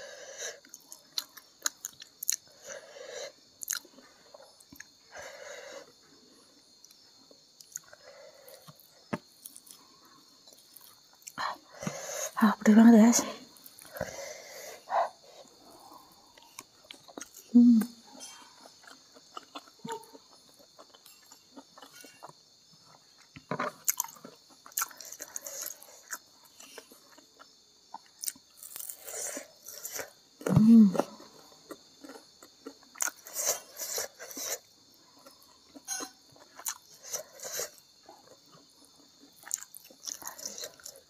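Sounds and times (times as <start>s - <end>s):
chewing crispy fried food: 0.0s - 41.0s
short vocal sound: 17.5s - 18.0s
mouth sounds: 17.5s - 20.2s.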